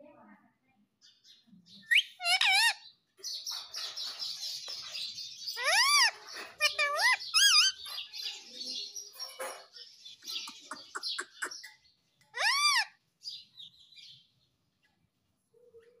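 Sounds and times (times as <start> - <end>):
parakeet whistled call: 1.9 - 2.8
parakeet chattering: 1.9 - 4.8, 5.4 - 8.5, 9.2 - 13.0.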